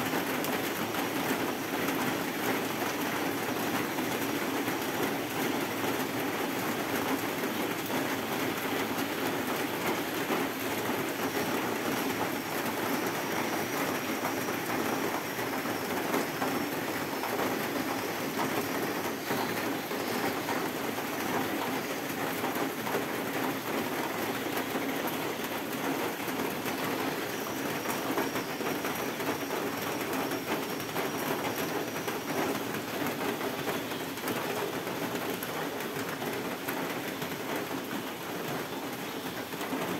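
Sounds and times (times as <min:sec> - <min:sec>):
heavy rain on metal roof: 0:00.0 - 0:39.9.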